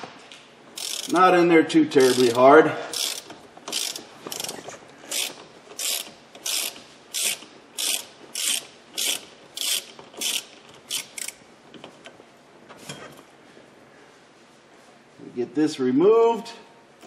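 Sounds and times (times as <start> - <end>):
hand ratchet clicking: 0.8 - 1.4, 2.0 - 11.4.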